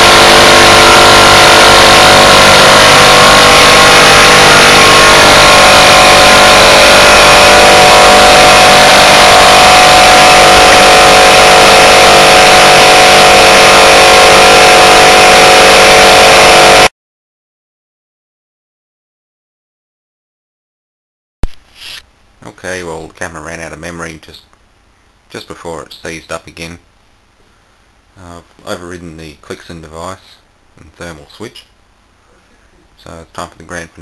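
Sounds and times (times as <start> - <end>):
compressor mechanical din: 0.0 - 16.9
electric motor hum: 0.0 - 16.9.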